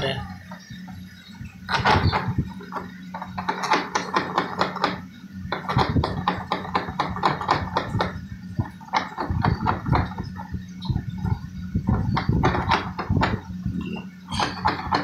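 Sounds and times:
steady low hum: 0:00.0 - 0:15.0
wire scraping and clicking in pipe: 0:00.5 - 0:15.0.

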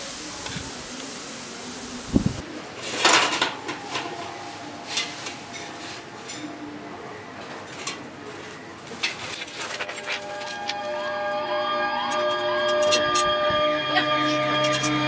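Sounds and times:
steel tubes clanking on metal: 0:02.8 - 0:06.6, 0:08.9 - 0:15.0
metallic ring: 0:09.4 - 0:13.5.

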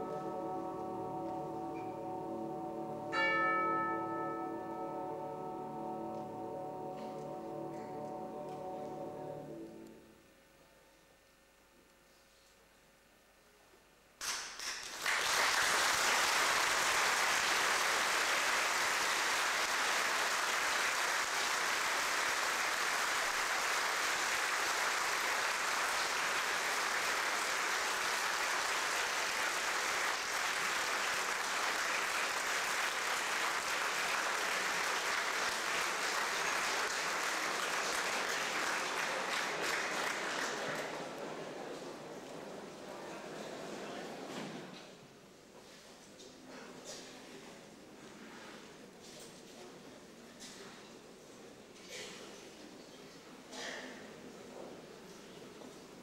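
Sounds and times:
audience applauding: 0:14.2 - 0:41.8.

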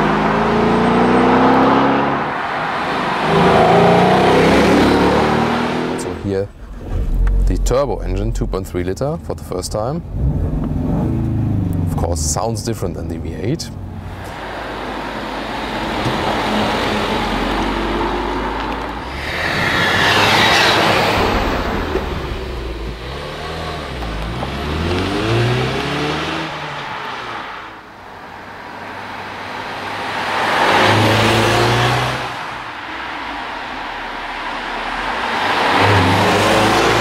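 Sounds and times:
car accelerating past: 0:00.0 - 0:07.6, 0:29.6 - 0:37.0.

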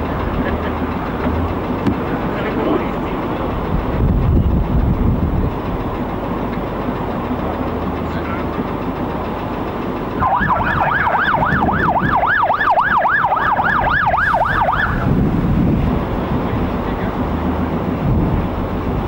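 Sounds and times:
steady rumbling noise: 0:00.0 - 0:19.0
ambulance siren wailing: 0:10.2 - 0:15.2.

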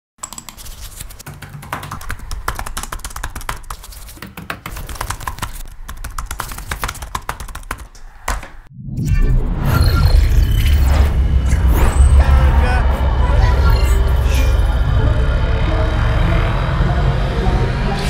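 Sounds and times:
fast keyboard typing: 0:00.2 - 0:08.7
low hum: 0:08.7 - 0:18.0.

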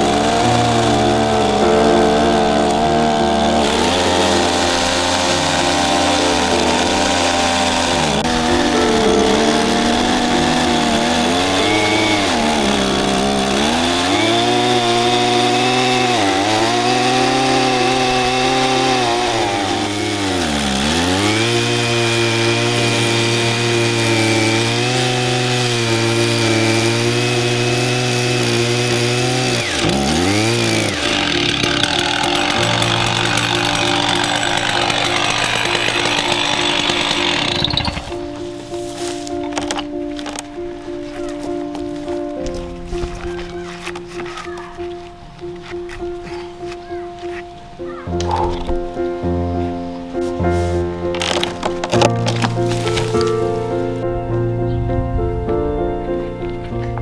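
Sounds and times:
chainsaw cutting log: 0:00.0 - 0:40.6, 0:50.8 - 0:54.0.

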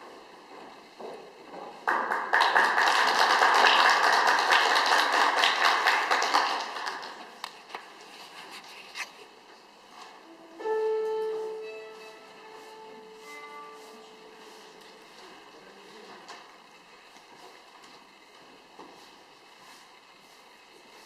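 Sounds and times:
audience applauding: 0:01.8 - 0:07.5.

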